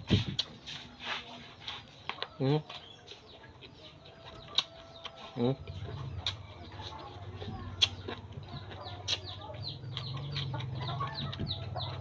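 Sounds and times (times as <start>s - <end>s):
chewing raw vegetables: 0.0s - 12.0s
chickens peeping: 0.2s - 12.0s.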